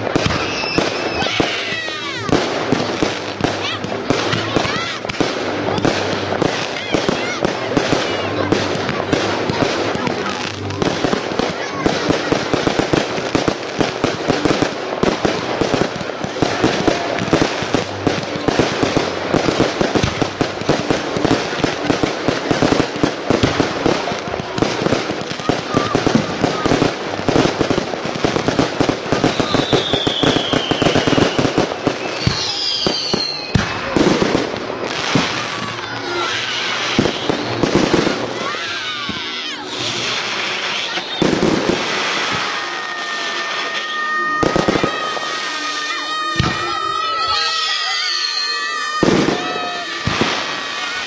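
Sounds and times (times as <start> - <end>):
fireworks bangs and crackles: 0.0 - 51.0
firework whistles gliding down: 0.2 - 1.9, 29.0 - 33.9, 36.2 - 38.7, 39.7 - 51.0.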